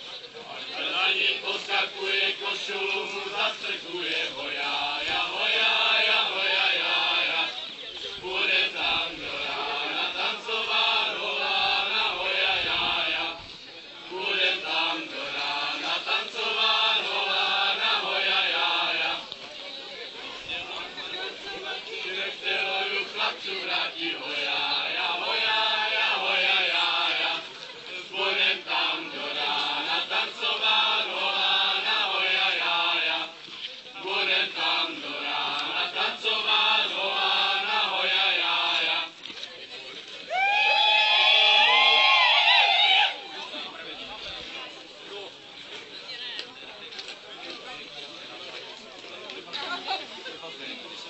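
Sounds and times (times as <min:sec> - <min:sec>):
group singing folk song: 0:00.0 - 0:39.6.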